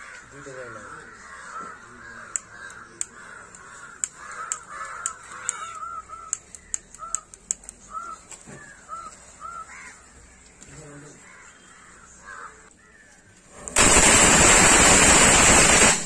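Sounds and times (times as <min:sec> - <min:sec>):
birds calling: 0:00.0 - 0:15.8
matches flaring: 0:13.5 - 0:16.0.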